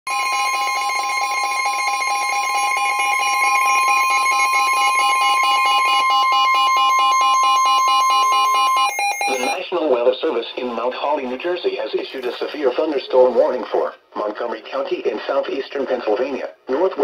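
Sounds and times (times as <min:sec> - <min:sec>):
steady alarm tone: 0:00.1 - 0:09.8
fast electronic beeping: 0:00.9 - 0:09.8.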